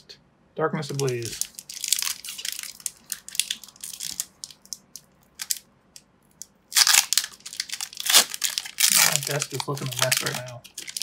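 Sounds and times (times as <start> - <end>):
foil wrapper crinkling: 0.9 - 5.6, 6.7 - 11.0.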